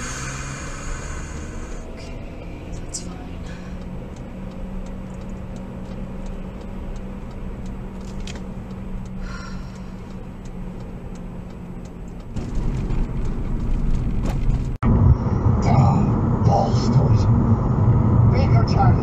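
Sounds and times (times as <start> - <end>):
car engine and road hum: 0.0 - 19.0
light ticking clicks: 3.7 - 12.4.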